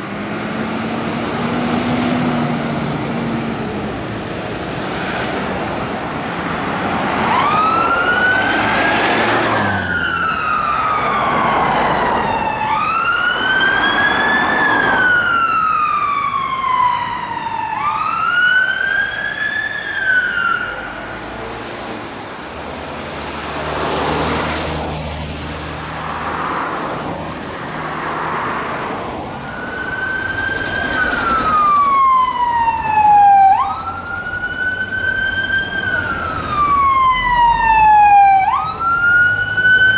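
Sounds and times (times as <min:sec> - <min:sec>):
traffic rumble: 0:00.0 - 0:39.9
fire engine siren wailing: 0:05.2 - 0:21.3, 0:25.9 - 0:39.9
police car siren wailing: 0:06.2 - 0:21.1, 0:26.4 - 0:39.9.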